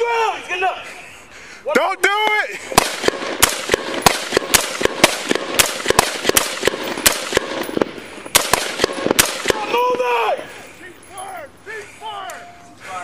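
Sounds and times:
rapid gunfire volley: 2.7s - 9.8s.

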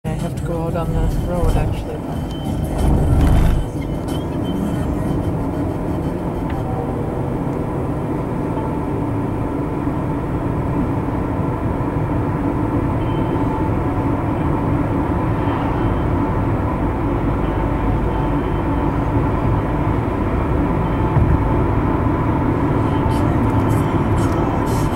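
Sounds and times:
car road noise from inside: 0.0s - 24.9s.

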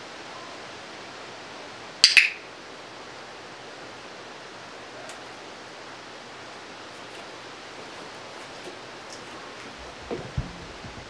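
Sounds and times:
faint background hiss: 0.0s - 11.0s.

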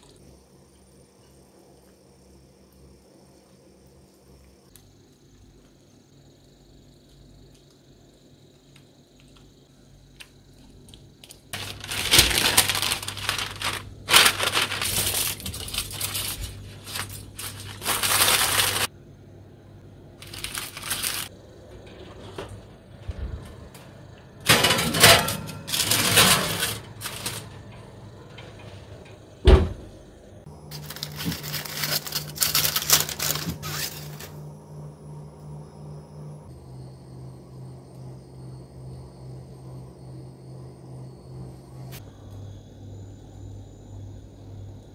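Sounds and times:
foil and parchment crinkling: 11.2s - 18.9s, 20.2s - 21.3s, 24.5s - 27.5s, 30.6s - 34.4s.

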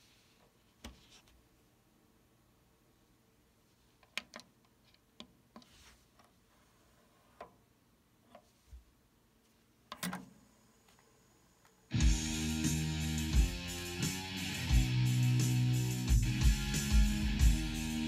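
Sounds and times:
guitar music: 11.9s - 18.0s.

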